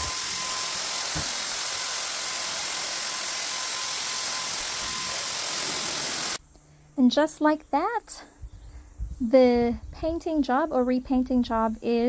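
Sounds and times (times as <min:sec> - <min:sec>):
paint sprayer hissing: 0:00.0 - 0:06.4
paint sprayer whine: 0:00.0 - 0:06.4.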